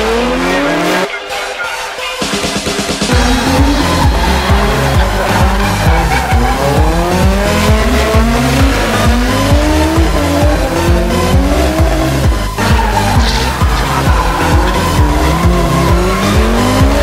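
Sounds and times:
car engines revving hard: 0:00.0 - 0:01.1, 0:03.0 - 0:17.0
dance music with thudding beat: 0:00.0 - 0:17.0.

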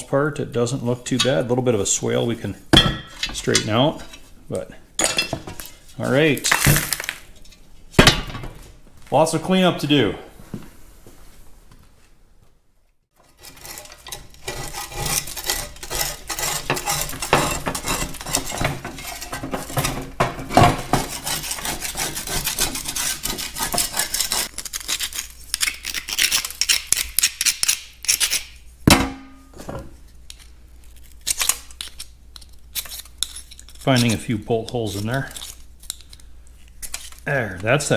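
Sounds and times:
metal blade scraping metal: 0:13.2 - 0:20.1, 0:20.8 - 0:28.5.

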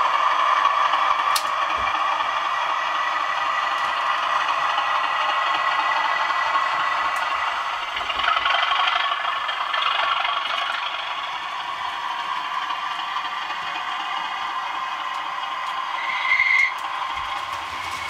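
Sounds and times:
model diesel engine sound: 0:00.0 - 0:18.0
model wheels clattering on track: 0:03.7 - 0:18.0.

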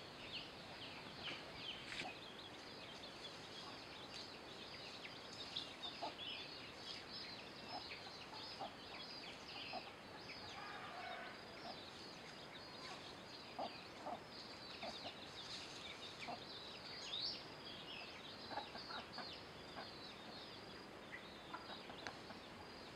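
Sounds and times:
chicks peeping: 0:00.4 - 0:10.5, 0:11.6 - 0:22.8
chickens clucking softly: 0:05.8 - 0:06.2, 0:07.6 - 0:10.6, 0:11.2 - 0:15.3, 0:18.0 - 0:22.7.

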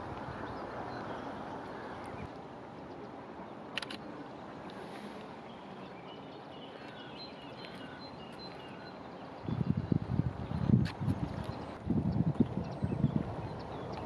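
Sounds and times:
steady background hiss: 0:00.0 - 0:12.1
short birdsong chirps: 0:04.8 - 0:14.0
wind gusts buffeting microphone: 0:09.3 - 0:14.0.

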